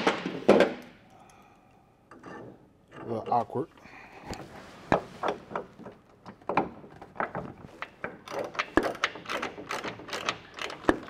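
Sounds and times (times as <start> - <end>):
metallic clicks and knocks: 5.2 - 11.0.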